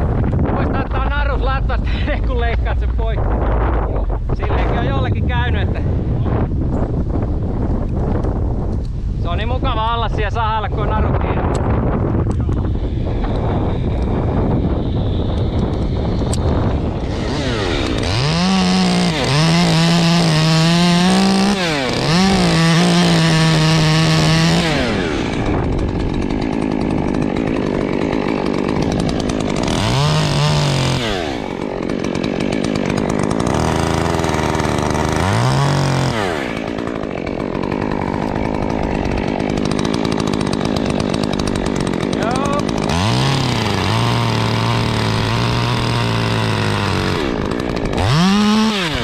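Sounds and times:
chainsaw cutting wood: 0:10.9 - 0:49.0.

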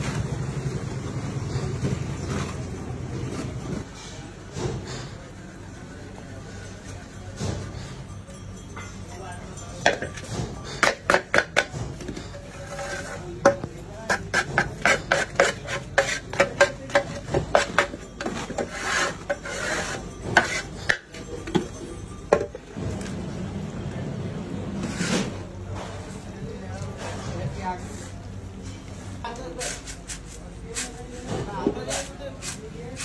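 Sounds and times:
scraping and stirring: 0:11.6 - 0:21.2.

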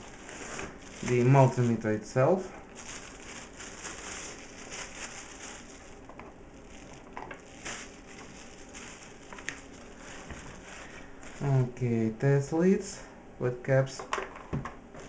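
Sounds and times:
plastic packaging crinkling: 0:00.0 - 0:11.8.

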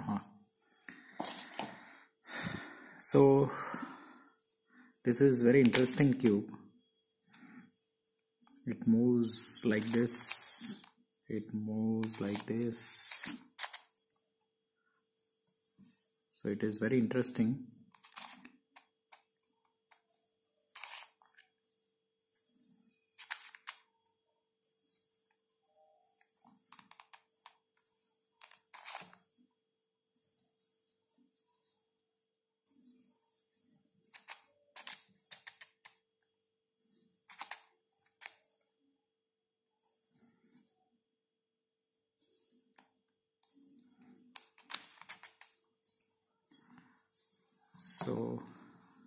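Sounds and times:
plastic puzzle clicks and scrapes: 0:04.9 - 0:06.4, 0:09.2 - 0:14.2, 0:17.9 - 0:21.6, 0:22.4 - 0:23.9, 0:26.2 - 0:29.3, 0:34.0 - 0:36.2, 0:36.8 - 0:38.5, 0:42.2 - 0:49.0.

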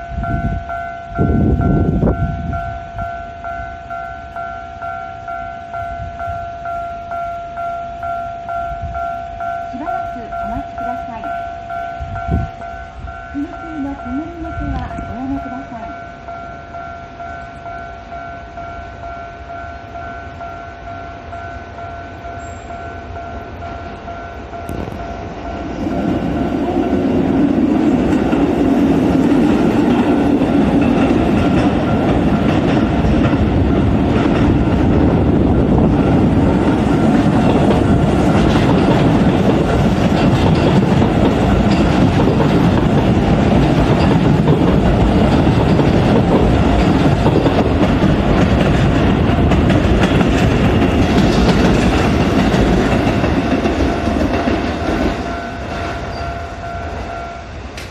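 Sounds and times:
level-crossing bell chiming: 0:00.0 - 0:27.5, 0:55.1 - 0:57.6
train rumbling past: 0:00.0 - 0:57.9
wheels clacking over rail joints: 0:24.5 - 0:57.9.

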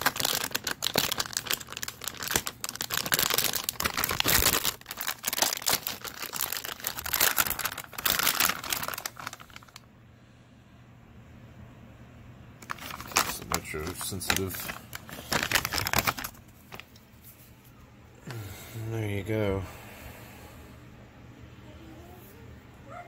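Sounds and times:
plastic bag crinkling: 0:00.0 - 0:09.8, 0:12.6 - 0:17.4.

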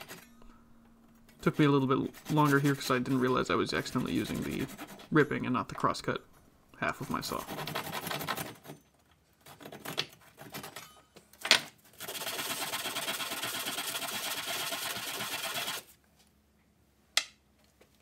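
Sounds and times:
hand saw cutting wood: 0:00.0 - 0:00.3, 0:01.4 - 0:05.2, 0:07.0 - 0:08.8, 0:09.4 - 0:10.8, 0:11.9 - 0:15.9.

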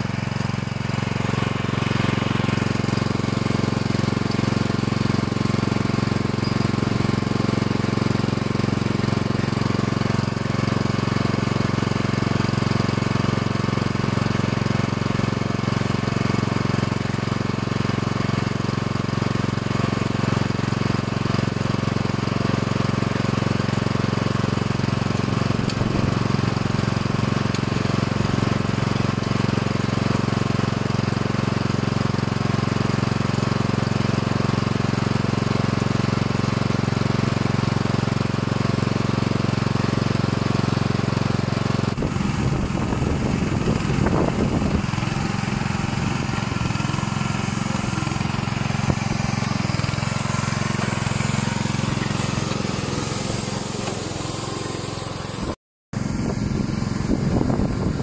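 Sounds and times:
engine pulsing hum: 0:41.9 - 0:58.0.

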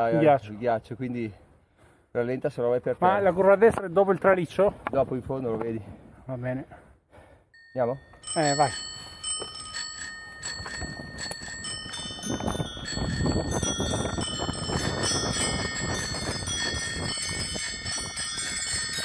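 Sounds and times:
wind on microphone: 0:10.4 - 0:19.0.

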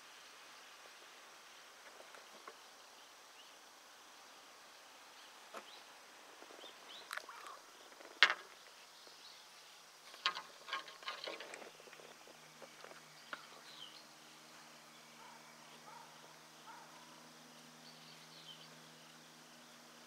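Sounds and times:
faint low hum: 0:00.0 - 0:20.0
sharp clicks and knocks: 0:10.1 - 0:12.0
faint bird chirps: 0:11.0 - 0:19.4.

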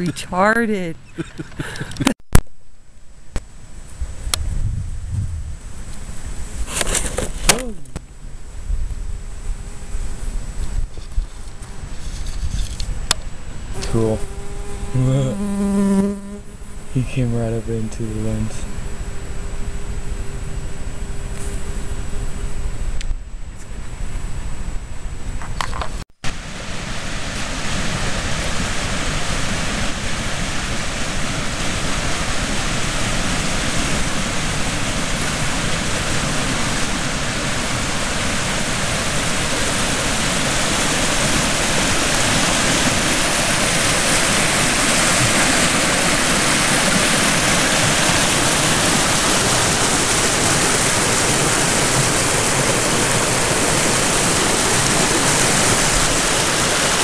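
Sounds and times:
creek water rushing over rocks: 0:26.3 - 0:57.0.

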